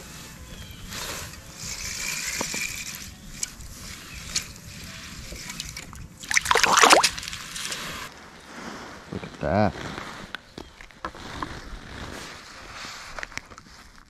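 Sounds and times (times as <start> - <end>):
water sloshing and splashing: 5.3 - 7.8.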